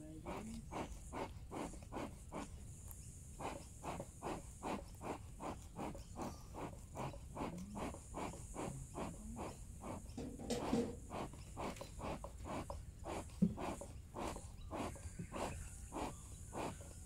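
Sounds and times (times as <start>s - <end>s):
animal rasping call: 3.4s - 17.0s.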